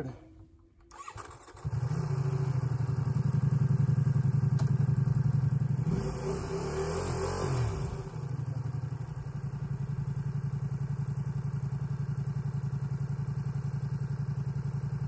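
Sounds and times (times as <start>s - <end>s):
motorcycle engine idling: 1.0s - 5.9s, 7.8s - 15.0s.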